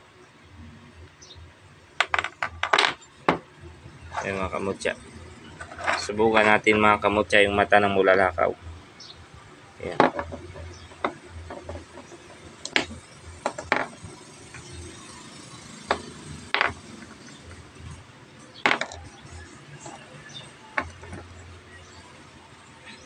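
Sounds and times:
stones clicking against metal magnet: 0:02.0 - 0:03.4, 0:09.9 - 0:14.1, 0:15.9 - 0:17.6, 0:18.6 - 0:20.0.

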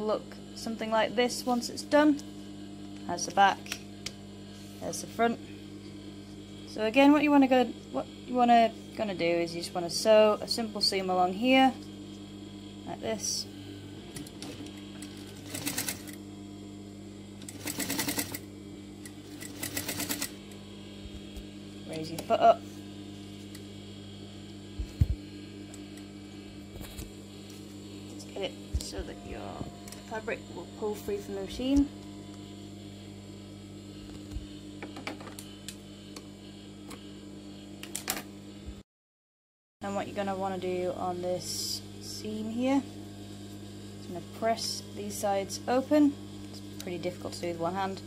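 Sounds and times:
steady machine hum: 0:00.0 - 0:38.8, 0:39.8 - 0:48.0
sewing machine motor humming: 0:14.0 - 0:16.2, 0:17.4 - 0:21.4
sewing machine stitching: 0:15.4 - 0:16.2, 0:17.4 - 0:18.4, 0:19.3 - 0:20.3.

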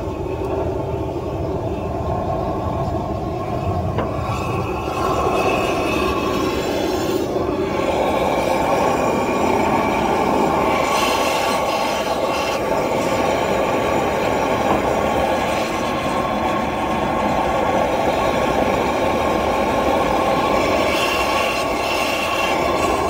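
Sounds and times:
propane torch flame rushing: 0:00.0 - 0:23.0.

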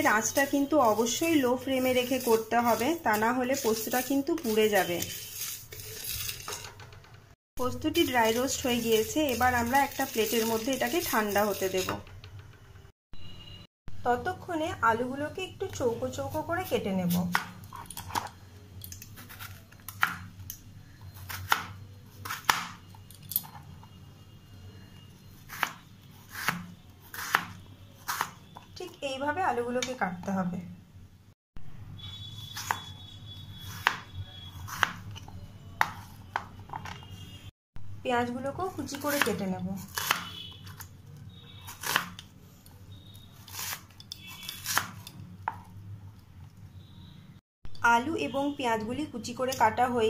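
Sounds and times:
knife slicing onion on board: 0:01.8 - 0:06.2, 0:25.5 - 0:28.4, 0:33.6 - 0:35.2, 0:38.9 - 0:40.8, 0:41.7 - 0:42.2, 0:43.5 - 0:45.6
knife cutting potato on plastic board: 0:25.5 - 0:28.4, 0:33.6 - 0:36.8, 0:38.9 - 0:40.8, 0:41.7 - 0:42.2.

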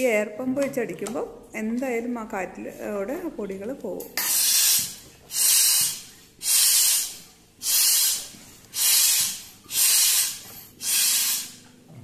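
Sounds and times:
hand air pump hissing: 0:04.2 - 0:11.7.

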